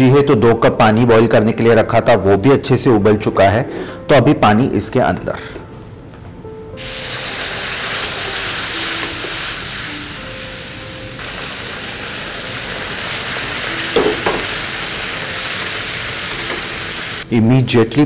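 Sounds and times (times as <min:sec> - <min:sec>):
water poured into hot pan: 0:06.8 - 0:17.2
loud hiss and sizzle: 0:06.8 - 0:17.4.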